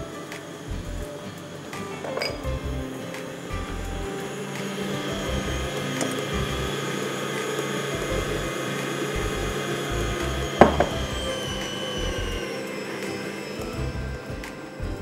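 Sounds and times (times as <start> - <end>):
stand mixer motor whine: 0.0 - 15.0.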